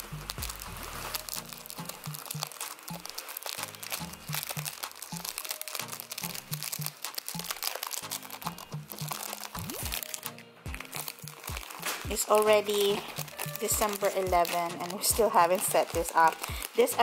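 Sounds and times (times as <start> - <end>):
background music with bass line: 0.0 - 12.2
plastic sleeve crinkling: 0.0 - 17.0.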